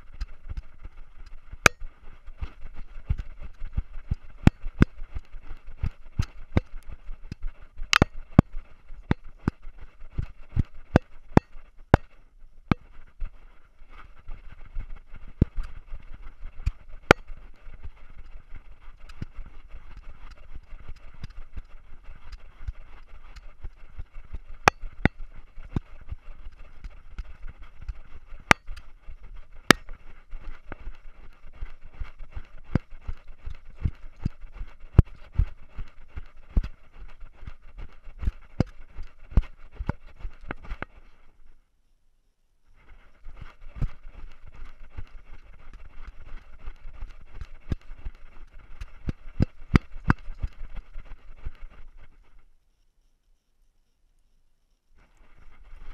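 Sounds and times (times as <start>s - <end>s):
camera knocking and clicking: 5.8s - 9.6s, 10.2s - 12.1s
muffled hiss: 40.5s - 55.9s.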